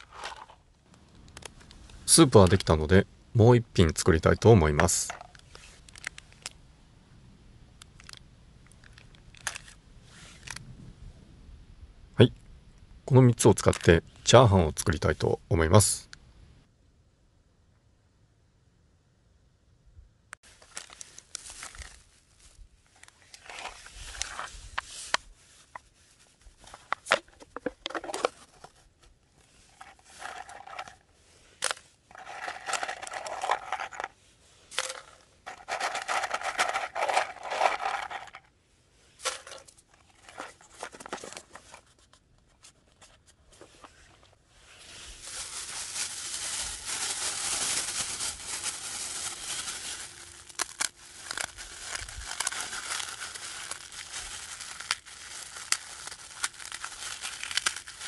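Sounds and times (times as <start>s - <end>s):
plastic bag crinkling: 29.7s - 31.0s, 32.1s - 34.2s, 34.8s - 38.4s, 44.9s - 58.0s
paper lid ripping: 45.4s - 58.0s.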